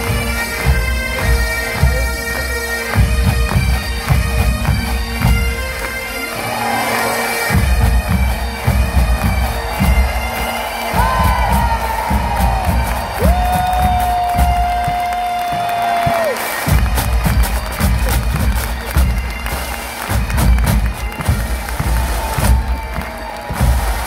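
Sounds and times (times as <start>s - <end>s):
drum beats: 0.0s - 6.8s, 7.5s - 24.0s
bagpipes playing over drone: 0.0s - 24.0s.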